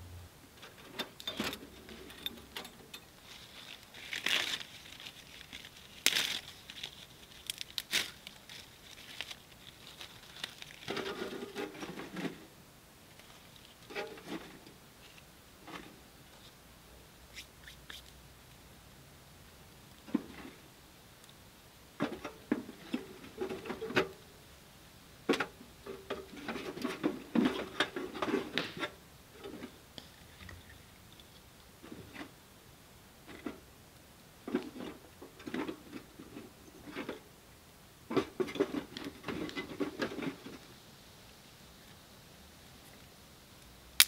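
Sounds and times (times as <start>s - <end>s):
dry crackly rustling: 0.6s - 12.4s, 13.1s - 16.6s.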